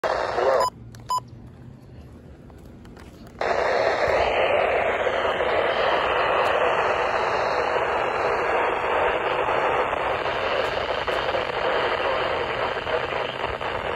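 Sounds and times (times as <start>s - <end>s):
static-laden radio broadcast: 0.0s - 0.8s, 3.4s - 13.9s.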